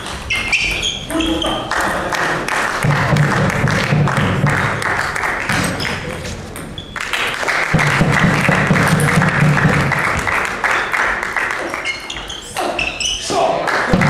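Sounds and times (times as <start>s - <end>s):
spectators clapping: 1.5s - 12.1s, 13.6s - 14.0s.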